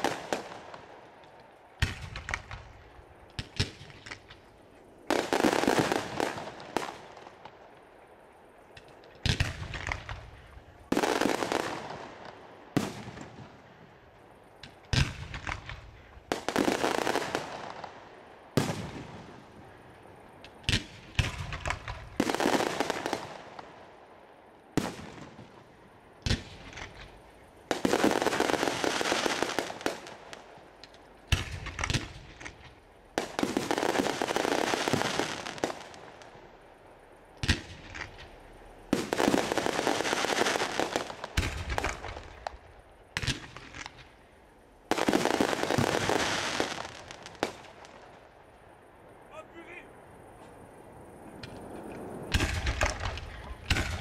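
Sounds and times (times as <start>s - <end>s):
fireworks crackling: 0.0s - 54.0s
firework shells bursting: 51.4s - 54.0s.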